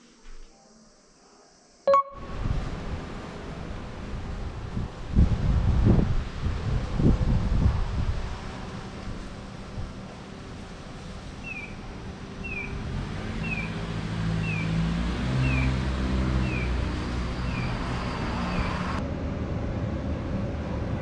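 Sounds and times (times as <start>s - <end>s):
crossing signal chirping: 1.9s - 2.4s, 16.4s - 19.0s
vehicle engine: 6.6s - 21.0s.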